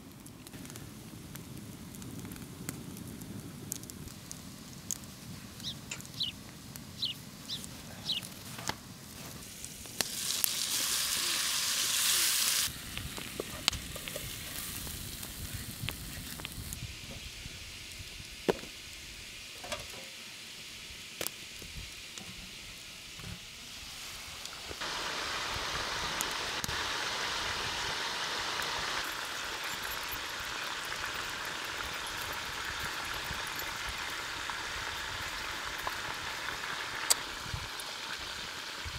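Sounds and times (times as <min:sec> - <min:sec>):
meat sizzling in hot fat: 0:09.0 - 0:38.9.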